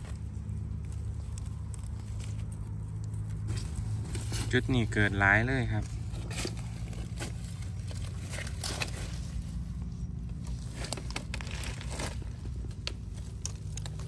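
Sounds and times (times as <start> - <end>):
dry leaves rustling and crackling: 0.0 - 14.0
steady low rumble: 0.0 - 14.0.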